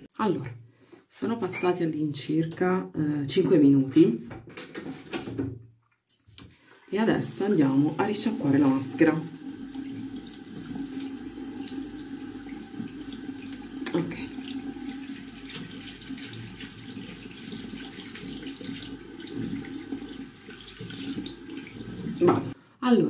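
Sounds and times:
tap water splashing into sink: 7.7s - 22.6s.

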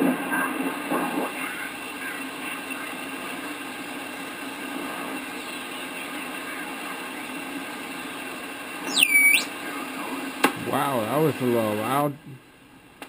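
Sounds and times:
radio squealing whistle: 8.9s - 9.5s.

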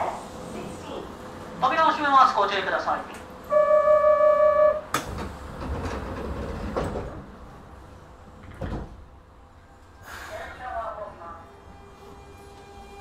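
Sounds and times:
sliding doors thumping shut: 4.9s - 7.4s, 8.4s - 9.1s.

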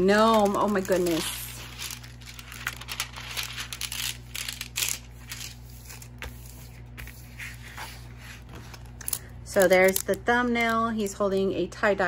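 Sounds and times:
plastic film crinkling and rustling: 0.0s - 7.0s, 8.5s - 10.3s.

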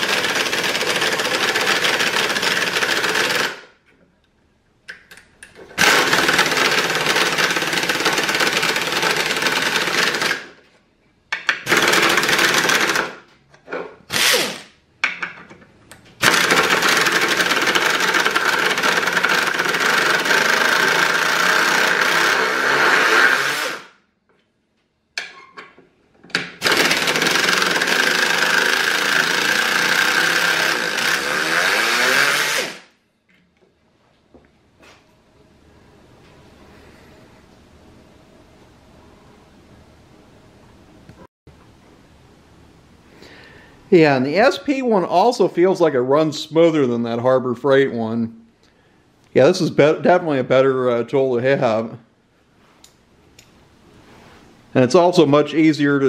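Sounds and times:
air ratchet whining: 0.0s - 3.6s, 14.1s - 14.7s, 16.2s - 23.9s, 26.6s - 32.9s.

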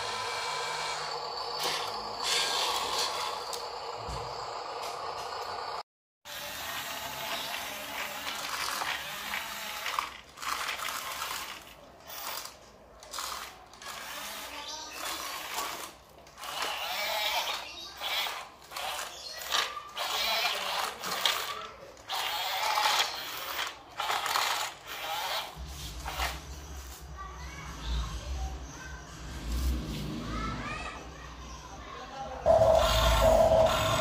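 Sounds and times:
toy electric motors whirring: 0.0s - 27.4s, 32.5s - 34.0s.

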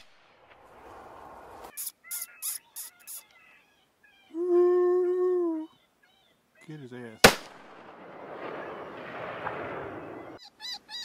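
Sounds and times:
coyote yipping and howling: 1.7s - 6.8s, 10.0s - 11.0s.

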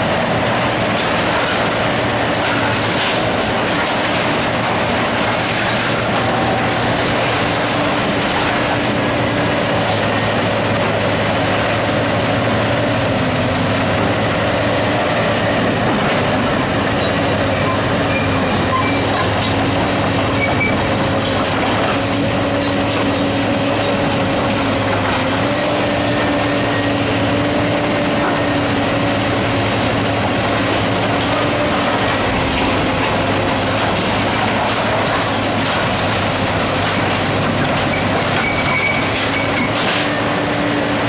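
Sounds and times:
excavator engine and hydraulics: 0.0s - 41.0s
debris clattering down: 1.0s - 8.8s
metal clanking and scraping: 1.0s - 9.0s, 15.9s - 25.8s, 30.5s - 40.2s.

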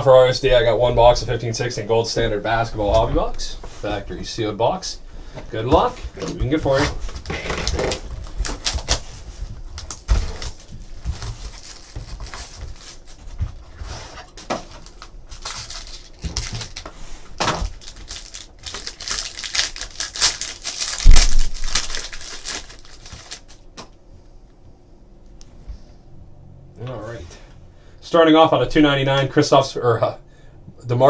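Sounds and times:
plastic wrap and cardboard crinkling: 5.7s - 23.9s
packaging clicks: 17.6s - 23.9s.

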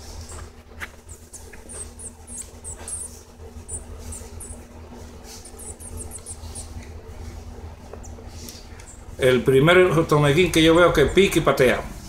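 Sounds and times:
low steady hum: 0.0s - 12.0s
high squeaky bird chirps: 1.0s - 4.7s, 5.4s - 6.8s.

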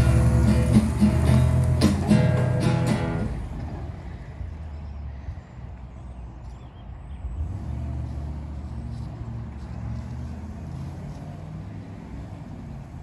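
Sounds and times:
truck engine driving away: 0.0s - 5.0s, 7.2s - 13.0s.

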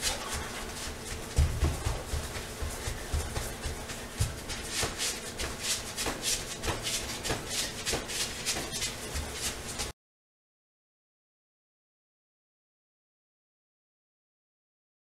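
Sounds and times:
clothing swishing: 0.0s - 9.9s
feet shuffling: 0.0s - 9.9s.

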